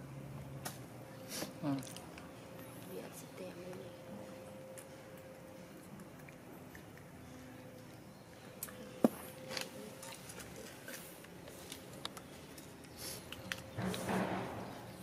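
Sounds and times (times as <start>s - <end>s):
monkeys chewing with wet smacks: 3.6s - 14.1s.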